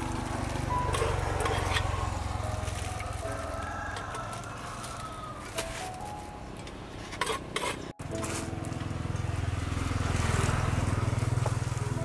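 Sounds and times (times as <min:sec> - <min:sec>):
scooter engine idling: 0:00.0 - 0:03.3, 0:08.0 - 0:12.0
plastic bags crackling: 0:00.0 - 0:06.3.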